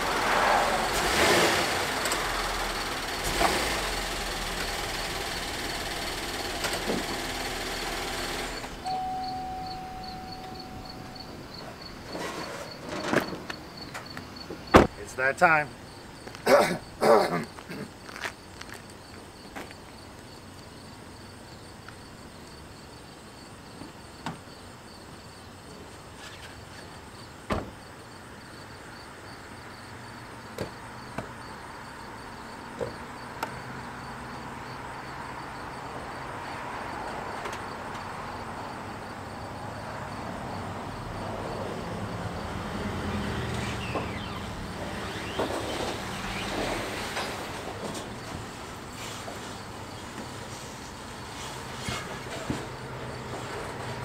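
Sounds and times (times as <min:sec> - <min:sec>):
car door opening and shutting: 0:06.5 - 0:15.0, 0:27.5 - 0:27.8, 0:42.6 - 0:49.3.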